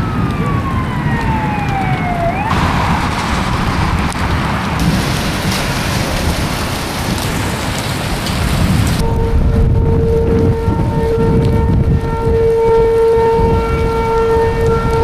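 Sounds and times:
warning siren winding down: 0:00.0 - 0:05.4, 0:09.0 - 0:15.0
heavy rushing wind: 0:00.0 - 0:15.0
rain: 0:00.0 - 0:15.0.

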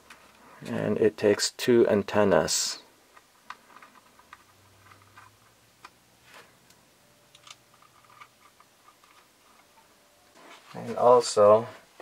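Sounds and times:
soft rustle: 0:07.8 - 0:12.0.

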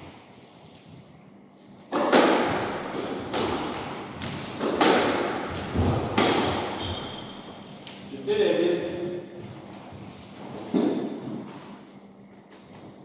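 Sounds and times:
squash ball hits: 0:01.9 - 0:07.4, 0:10.5 - 0:11.6.

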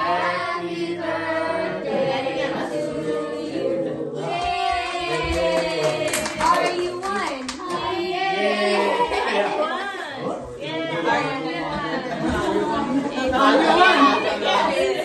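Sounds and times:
group singing birthday song: 0:00.0 - 0:15.0
people clapping: 0:04.2 - 0:08.3.

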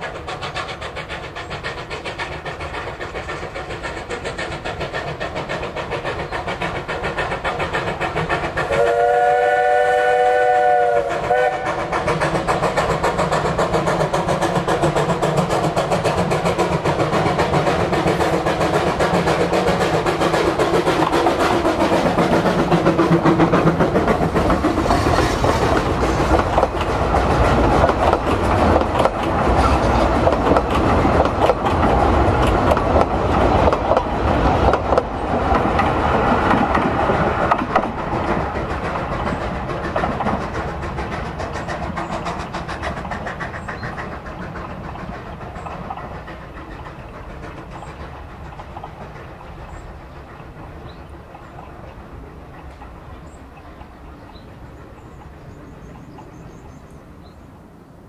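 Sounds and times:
steam locomotive passing: 0:00.0 - 0:58.0
coaches clattering over rail joints: 0:11.2 - 0:57.4.

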